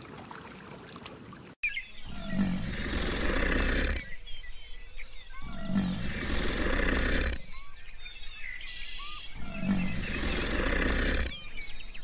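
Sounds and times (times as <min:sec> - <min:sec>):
deep animal roar: 0:02.1 - 0:04.2, 0:05.4 - 0:07.6, 0:09.3 - 0:11.7.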